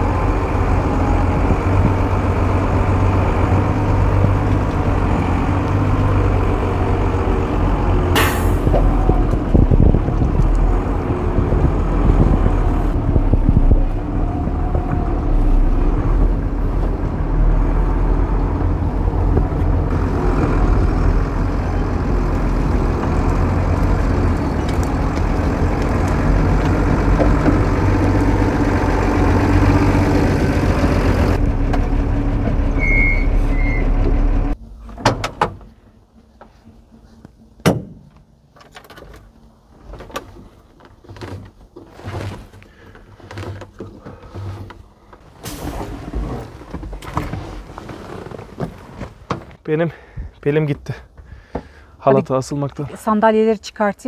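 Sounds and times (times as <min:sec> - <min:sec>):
diesel truck engine running: 0:00.0 - 0:34.7
short beeps: 0:32.8 - 0:33.9
sharp clunks and knocks: 0:34.9 - 0:35.7, 0:37.6 - 0:39.2.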